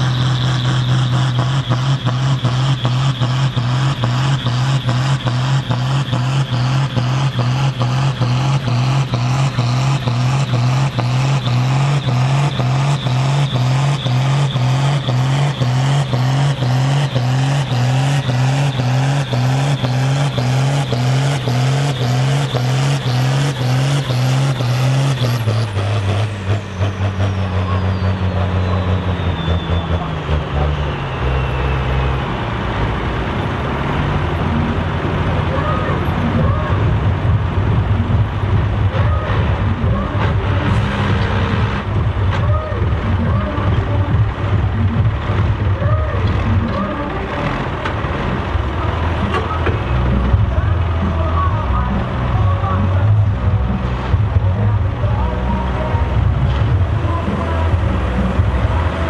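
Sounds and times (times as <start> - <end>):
turbo whine: 0.0 - 32.2
diesel tractor engine under load: 0.0 - 59.0.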